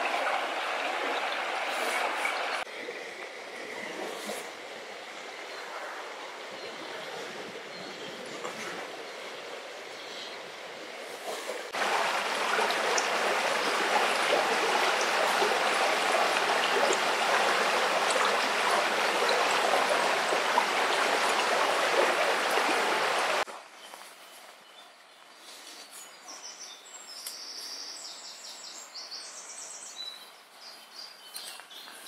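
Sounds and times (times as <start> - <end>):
river water rushing over stones: 0.0 - 3.5, 10.7 - 23.5.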